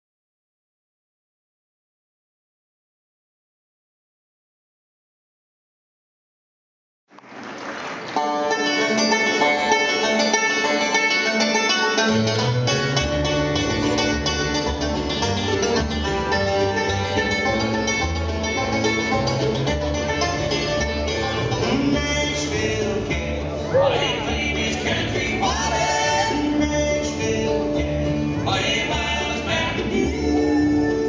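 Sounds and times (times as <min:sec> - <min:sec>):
bluegrass band playing: 0:08.0 - 0:31.0
upright bass notes: 0:08.2 - 0:31.0.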